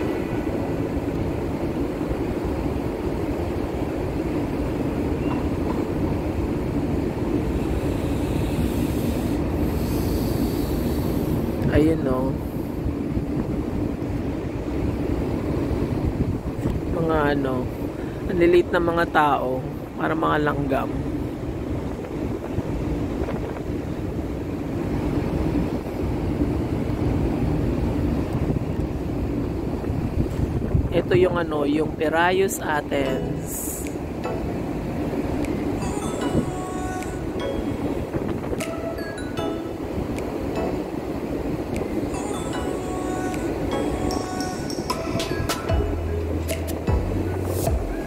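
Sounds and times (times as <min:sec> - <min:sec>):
wind rumbling over microphone: 0:00.0 - 0:42.2, 0:44.6 - 0:48.0
low rumble: 0:45.1 - 0:48.0.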